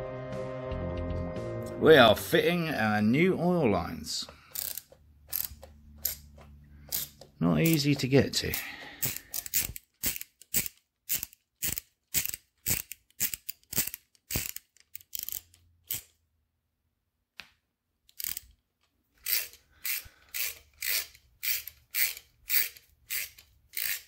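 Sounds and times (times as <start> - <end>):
socket ratchet clicking: 4.5 - 16.2, 18.1 - 18.6, 19.2 - 24.0.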